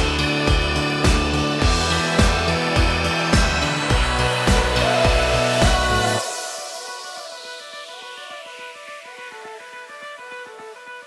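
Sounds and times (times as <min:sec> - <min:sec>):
kick drum beat: 0:00.0 - 0:06.1
sustained bass line: 0:00.0 - 0:06.3.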